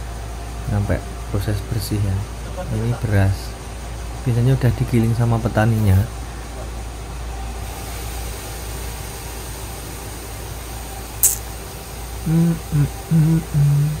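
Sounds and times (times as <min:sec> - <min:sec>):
sharp click: 0:11.2 - 0:11.5.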